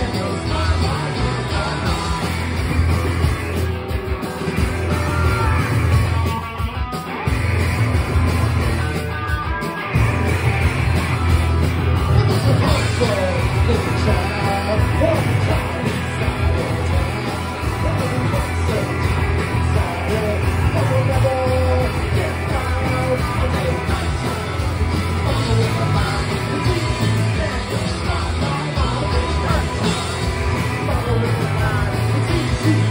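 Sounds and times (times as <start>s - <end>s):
bass guitar: 0.0s - 32.9s
distorted electric guitars: 0.0s - 32.9s
drums: 0.0s - 32.9s
shouted vocals: 4.7s - 6.2s.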